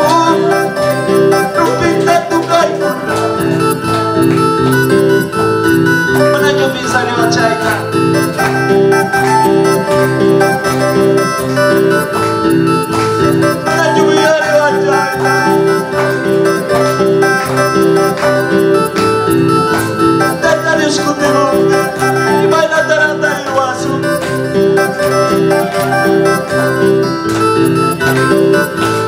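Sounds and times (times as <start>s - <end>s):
man singing: 0.0s - 0.7s, 1.6s - 3.6s, 13.6s - 15.2s, 20.2s - 24.4s
electronic keyboard worship tune: 0.0s - 29.0s.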